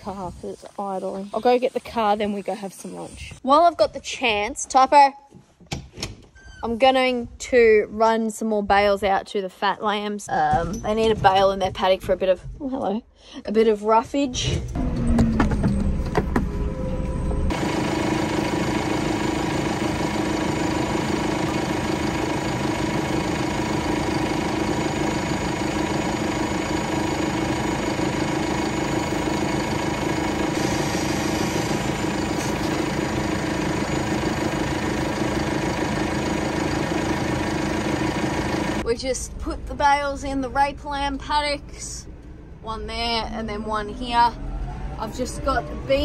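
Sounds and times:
tractor engine running: 14.5s - 41.0s.

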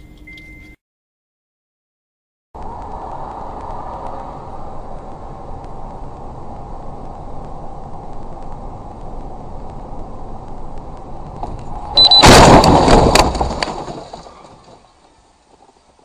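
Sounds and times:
road noise inside a car: 2.6s - 16.0s
loud car crash: 11.4s - 15.8s.

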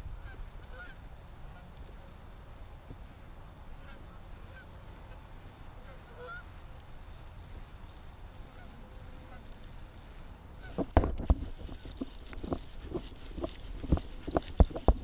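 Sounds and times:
wind rumble on microphone: 0.0s - 15.0s
geese honking: 0.2s - 1.7s, 5.8s - 6.5s, 10.6s - 11.0s.

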